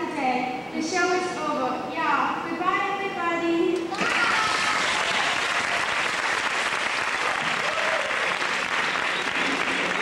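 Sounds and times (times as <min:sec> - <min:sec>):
audience applause: 0:03.9 - 0:10.0.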